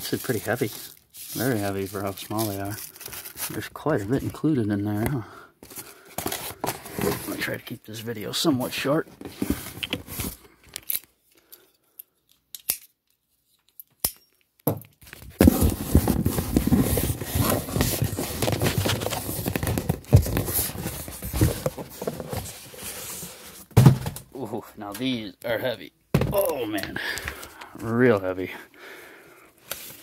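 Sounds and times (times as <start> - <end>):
box scraping against cardboard: 5.6 - 7.6, 15.4 - 23.8
cardboard crackling: 15.2 - 24.0.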